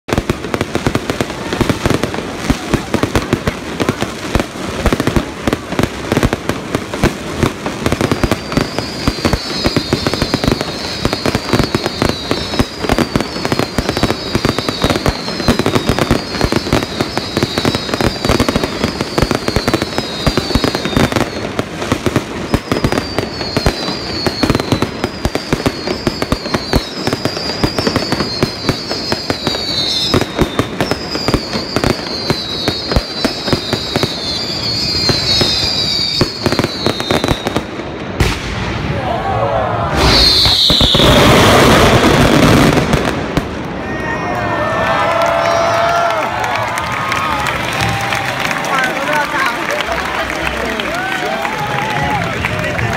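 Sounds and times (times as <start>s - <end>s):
fireworks bangs and crackling: 0.0s - 52.9s
fireworks whistles falling in pitch: 7.8s - 38.8s, 39.9s - 43.2s, 44.0s - 48.5s.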